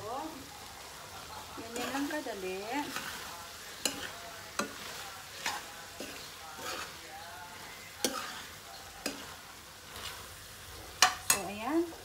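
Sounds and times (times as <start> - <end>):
soft sizzle: 0.0 - 12.0
metal spoon stirring in wok: 0.8 - 12.0
spoon knocking against pan: 11.0 - 11.5.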